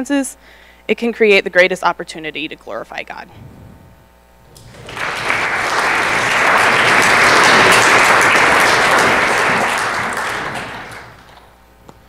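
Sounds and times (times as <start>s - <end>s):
audience applauding: 4.6s - 11.5s.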